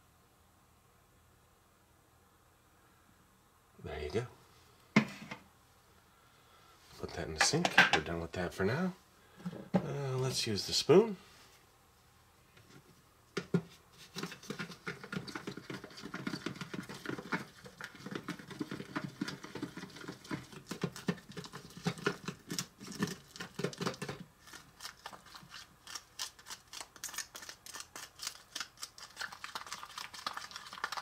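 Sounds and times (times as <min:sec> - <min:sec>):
spoon scraping plastic bowl: 0:13.4 - 0:28.4.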